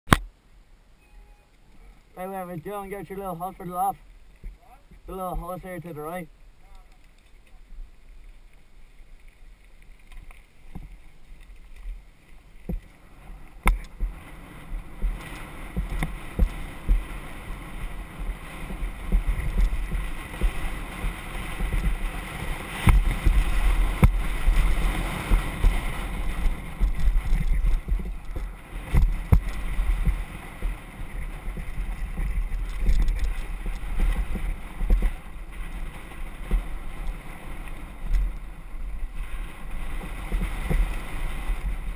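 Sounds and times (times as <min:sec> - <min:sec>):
bike rolling over gravel trail: 0:02.0 - 0:41.9
bike knocking and rattling: 0:06.6 - 0:41.9
wind buffeting microphone: 0:12.0 - 0:41.9.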